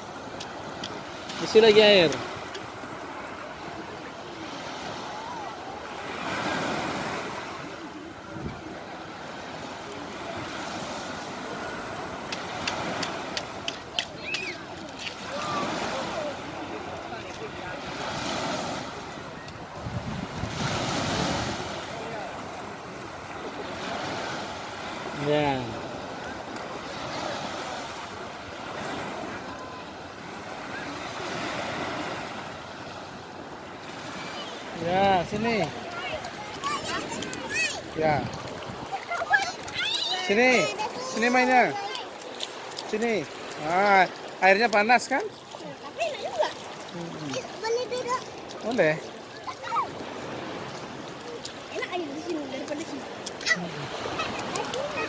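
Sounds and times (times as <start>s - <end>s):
surf: 0.0s - 55.0s
wind: 0.0s - 55.0s.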